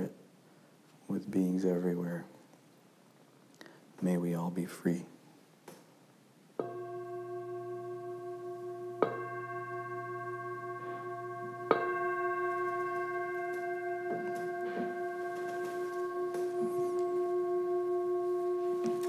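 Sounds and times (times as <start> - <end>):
singing bowl struck with mallet: 6.6 - 19.0.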